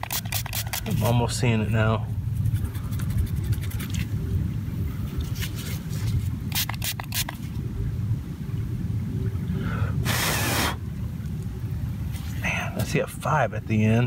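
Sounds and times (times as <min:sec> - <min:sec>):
fingers scraping dirt off coin: 0:00.0 - 0:01.2, 0:06.5 - 0:07.4
sharp scratchy sounds: 0:00.0 - 0:01.2.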